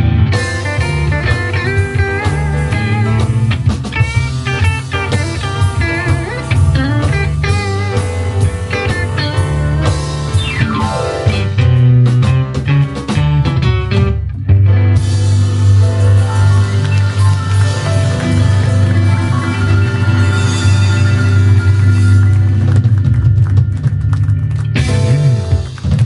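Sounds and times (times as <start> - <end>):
drums: 0.0 - 26.0
electric guitar lead with bent notes: 0.0 - 26.0
keyboard: 0.0 - 26.0
upright bass: 0.0 - 26.0.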